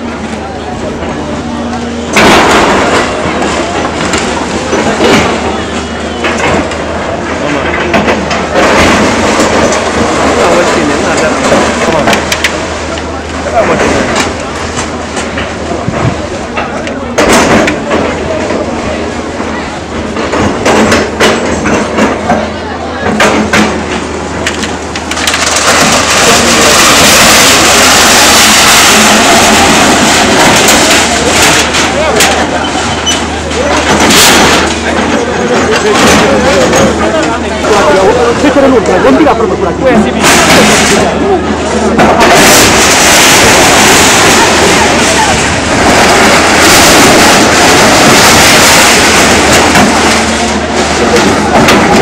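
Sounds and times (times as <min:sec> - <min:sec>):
loud distorted crowd noise: 0:00.0 - 0:52.0
metal and masonry crashing: 0:00.0 - 0:52.0.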